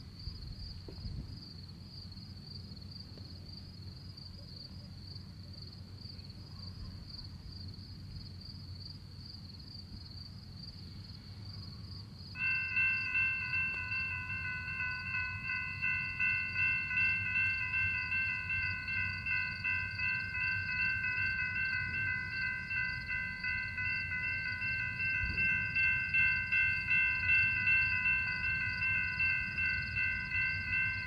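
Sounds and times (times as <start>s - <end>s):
high insect trill: 0.0s - 31.0s
railroad crossing bell ringing: 12.3s - 31.0s.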